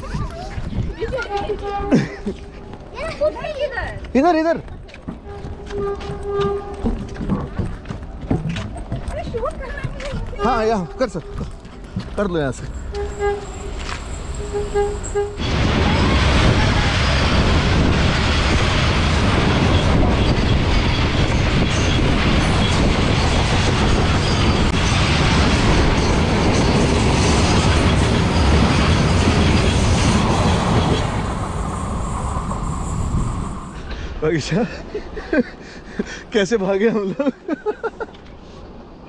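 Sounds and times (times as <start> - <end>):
train wheels rumbling on rails: 0.0 - 39.0.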